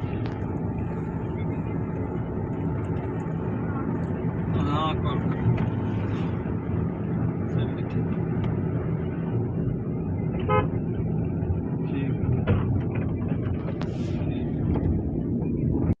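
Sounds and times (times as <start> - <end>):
car engine and road noise: 0.0 - 16.0
car horn toot: 10.4 - 10.8.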